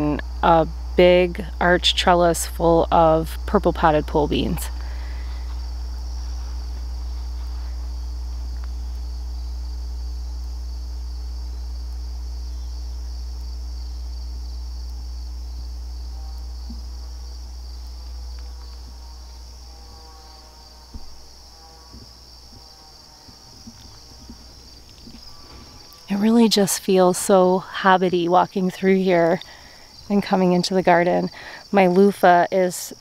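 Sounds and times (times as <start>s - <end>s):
crickets and insects chorus: 0.0s - 33.0s
soft knocks: 20.9s - 21.2s.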